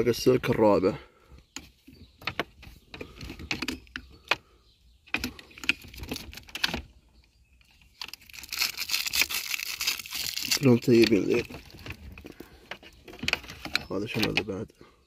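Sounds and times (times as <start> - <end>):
taped wiring harness crinkling: 8.0 - 14.4.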